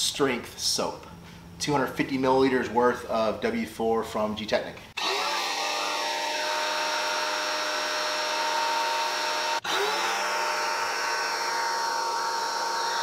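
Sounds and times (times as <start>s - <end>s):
pressure washer motor whining: 5.0s - 13.0s.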